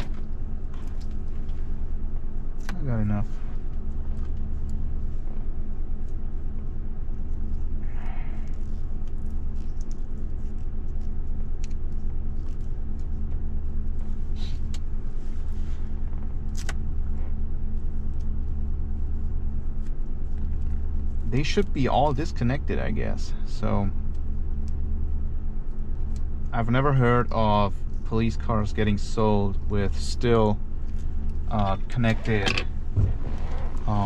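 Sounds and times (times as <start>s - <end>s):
car engine idling: 10.8s - 34.0s.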